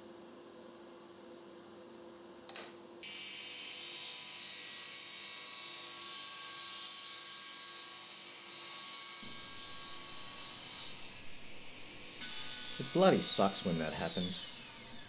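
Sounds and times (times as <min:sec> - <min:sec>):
table saw cutting wood: 0:03.0 - 0:15.0.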